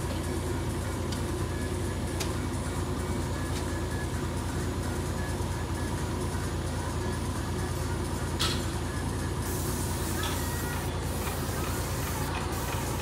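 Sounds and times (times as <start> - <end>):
machinery droning: 0.0 - 13.0
paint sprayer hissing: 9.4 - 13.0.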